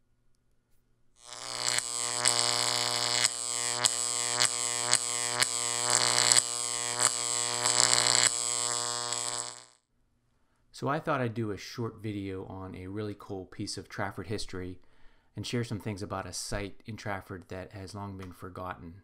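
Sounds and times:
loud electrical buzz: 1.2 - 9.8
sharp electrical crackles: 1.2 - 9.8.

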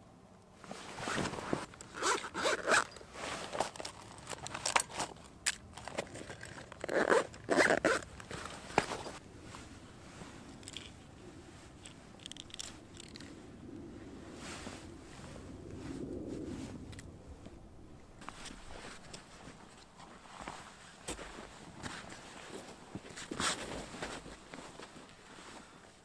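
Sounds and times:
gear rustling: 0.6 - 13.4
zipper pulls: 0.9 - 5.1, 5.8 - 9.1.

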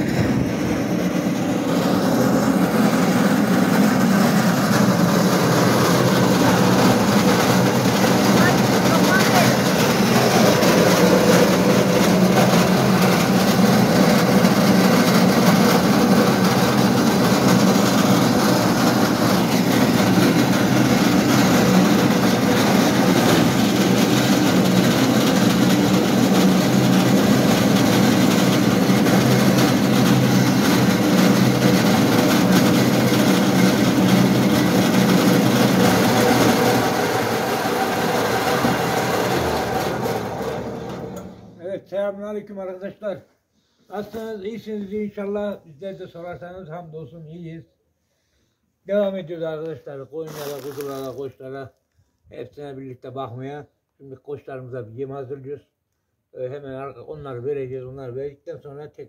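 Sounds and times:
engine hum: 0.0 - 41.6.

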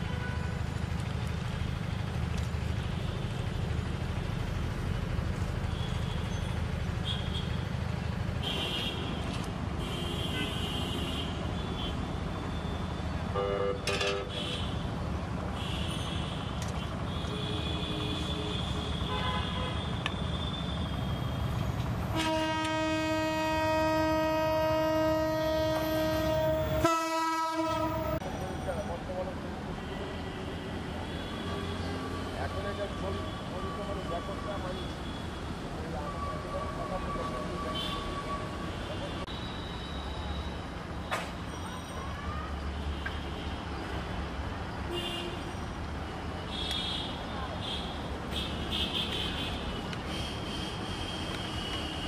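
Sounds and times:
train horn: 22.1 - 28.2.

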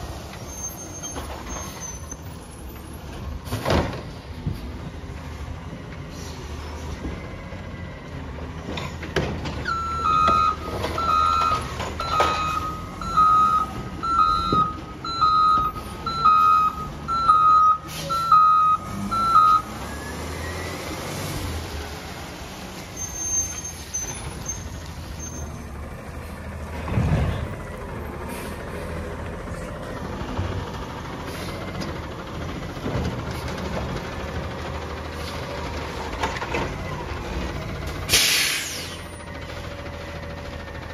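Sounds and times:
diesel engine running: 4.1 - 40.9
backup alarm beeping: 9.7 - 19.7.

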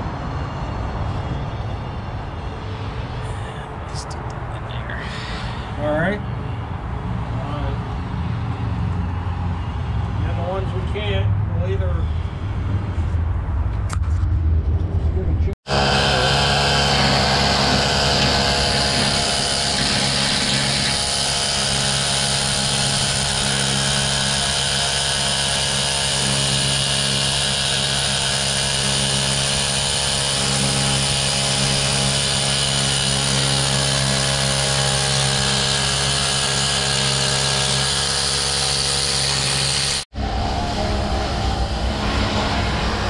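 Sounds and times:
pneumatic chipping tool on steel: 15.7 - 40.1.

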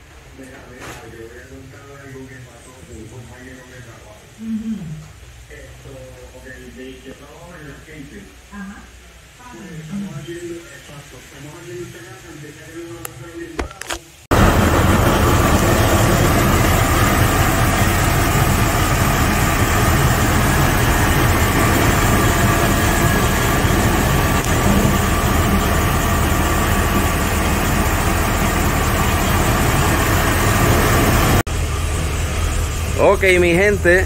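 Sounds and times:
truck engine idling: 14.3 - 34.0.

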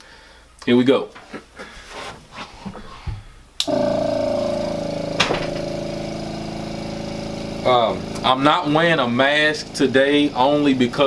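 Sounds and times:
air compressor running: 3.6 - 11.0.

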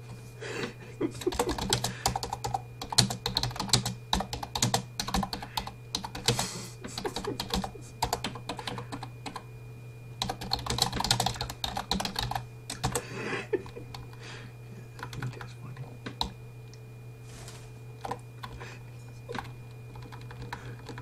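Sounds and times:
fast typing on a keyboard: 1.2 - 9.4, 10.2 - 13.0, 13.6 - 14.1, 15.0 - 16.4, 18.0 - 18.6, 19.3 - 21.0.

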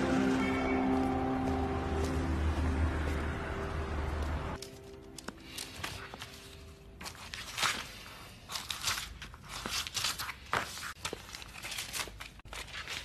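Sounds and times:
paper rustling: 4.6 - 13.0.

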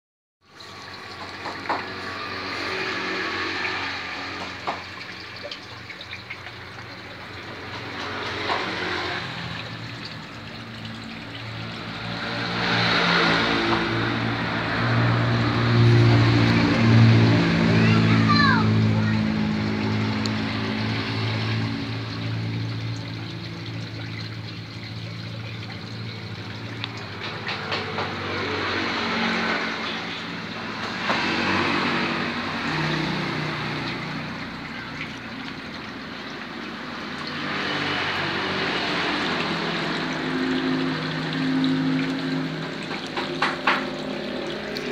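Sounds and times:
water pouring into pond: 0.4 - 44.9.

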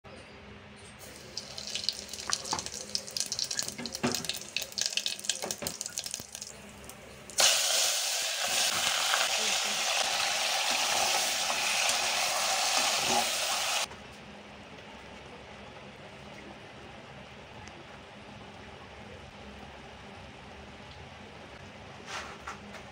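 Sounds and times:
meat sizzling in hot oil: 1.0 - 6.5, 7.3 - 13.9
hot oil crackling and popping: 1.0 - 13.9.

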